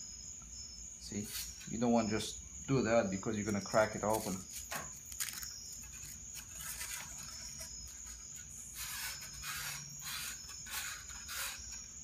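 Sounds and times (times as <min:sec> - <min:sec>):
dry rubbing strokes on tube: 0:01.2 - 0:01.8, 0:03.6 - 0:12.0.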